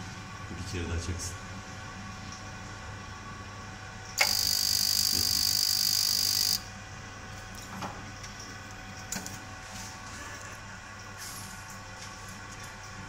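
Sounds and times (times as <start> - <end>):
ignition spark hissing buzz: 4.2 - 6.6.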